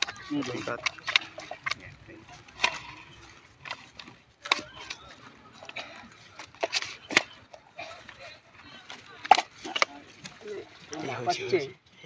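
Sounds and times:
fish flapping: 0.0 - 11.0.

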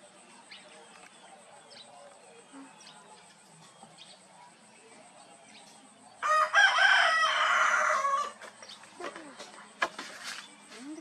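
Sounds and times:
faint outdoor background: 0.0 - 11.0
rooster crowing: 6.2 - 8.4.

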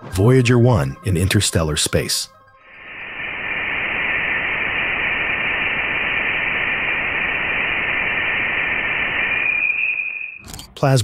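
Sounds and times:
steady radio-like hiss: 2.6 - 10.4
narrow whistling tone: 2.7 - 10.4.

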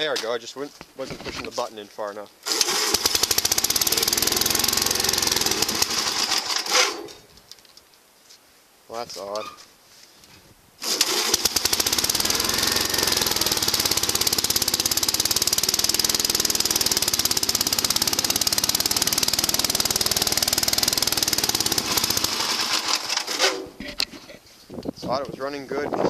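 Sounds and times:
small engine starting and running: 2.4 - 7.1, 10.8 - 23.8.

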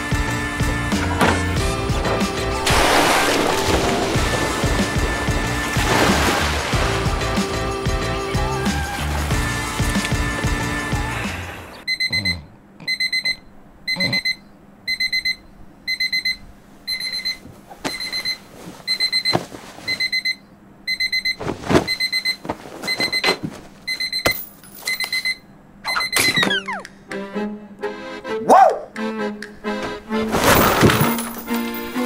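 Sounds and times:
alarm clock beeping: 11.9 - 19.3, 19.9 - 26.8.

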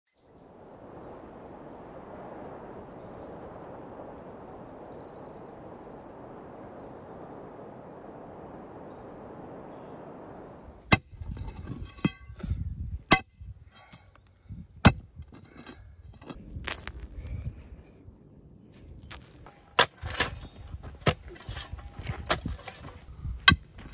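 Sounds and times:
steady outdoor hiss: 0.2 - 11.1
metal bar clanging on stones: 11.0 - 12.4
thuds and scrapes of earth: 14.8 - 17.1, 18.8 - 23.9.

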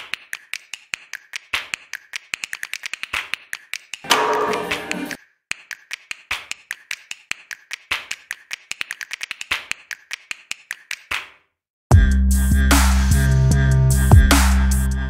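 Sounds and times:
ringing hit: 4.1 - 5.2.

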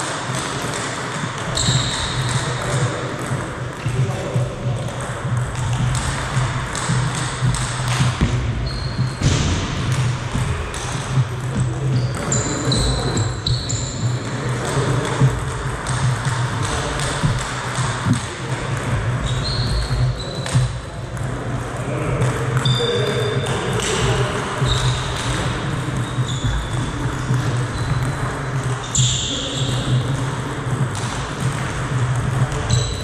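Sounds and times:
shoes squeaking on floor: 1.4 - 3.0, 6.8 - 9.3, 11.1 - 15.4, 19.2 - 20.8, 22.6 - 30.6, 32.4 - 33.0.

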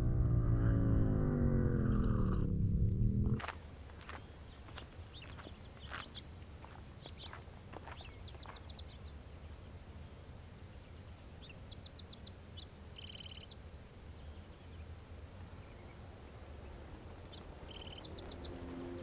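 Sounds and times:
faint low rumble: 0.0 - 6.0
footsteps on gravel: 3.4 - 9.0
small bird calling: 4.0 - 14.8.

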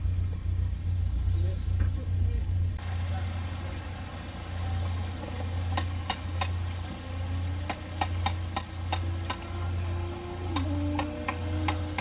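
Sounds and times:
boat engine idling: 0.0 - 12.0
water rushing into a lock: 2.8 - 12.0.

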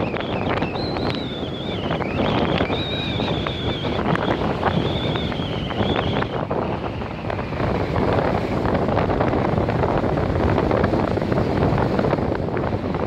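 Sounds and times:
high wavering whistle: 0.0 - 6.5
wind buffeting microphone: 0.0 - 13.0.

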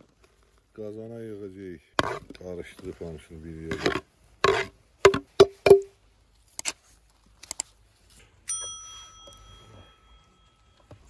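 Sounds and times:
small clicks: 7.4 - 7.8
bell ding: 8.5 - 11.0.

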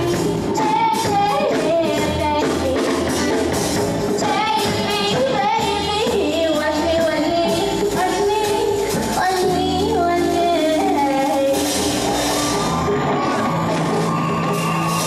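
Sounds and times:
woman singing into microphone: 0.0 - 3.5, 4.2 - 11.8.

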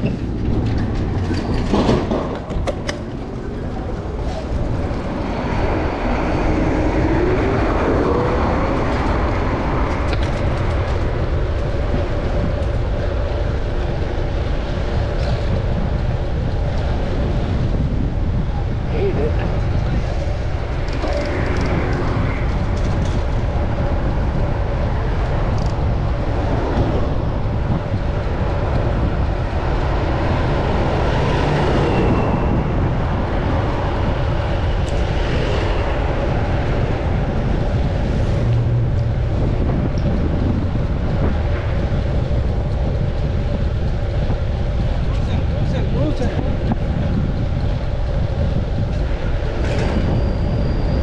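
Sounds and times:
city traffic rushing: 0.0 - 51.0
wind: 0.0 - 51.0
high squeal: 49.6 - 51.0.

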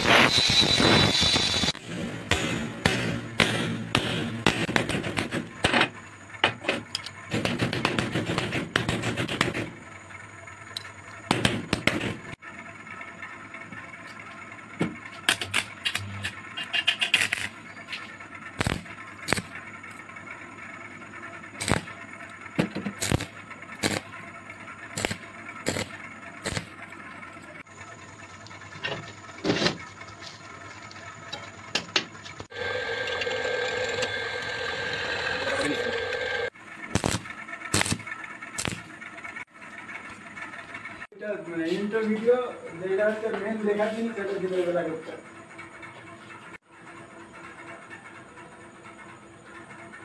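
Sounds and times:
welding arc sizzling: 0.0 - 12.4, 15.1 - 31.2, 31.8 - 39.1
hammer striking steel plate: 2.2 - 5.8.

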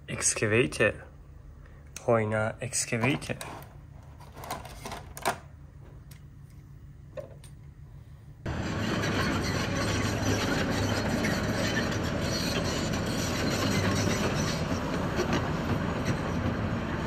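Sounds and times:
diesel excavator engine running: 8.4 - 17.0.

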